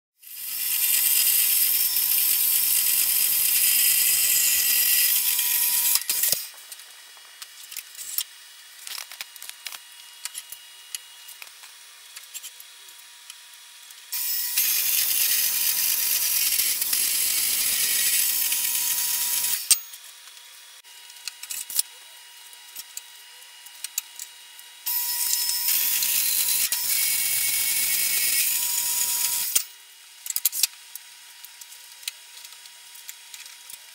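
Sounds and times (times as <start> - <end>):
bandsaw blade hissing on steel: 0.3 - 6.5, 14.1 - 20.0.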